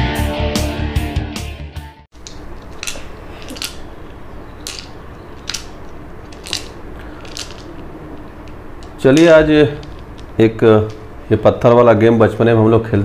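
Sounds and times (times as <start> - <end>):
pebbles clicking: 2.2 - 11.3
low room hiss: 2.2 - 13.0.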